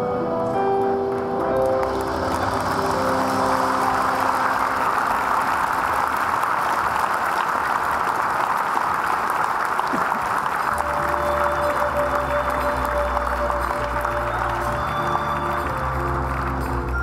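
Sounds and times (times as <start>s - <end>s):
music: 0.0s - 6.4s, 10.7s - 17.0s
audience applauding: 1.0s - 17.0s.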